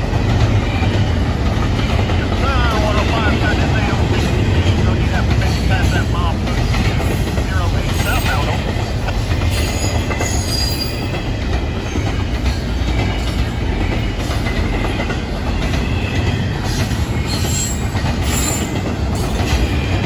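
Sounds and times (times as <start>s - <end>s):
train wheels rumbling on rail: 0.0s - 20.0s
high wheel squeals: 9.4s - 20.0s.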